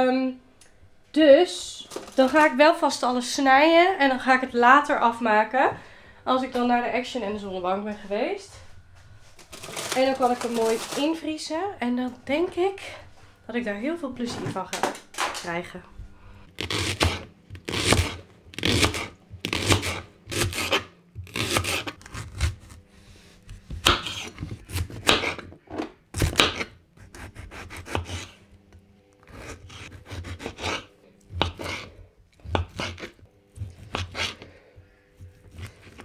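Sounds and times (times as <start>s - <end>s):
knife chopping on cutting board: 16.6s - 22.8s, 23.5s - 28.4s, 29.3s - 34.5s.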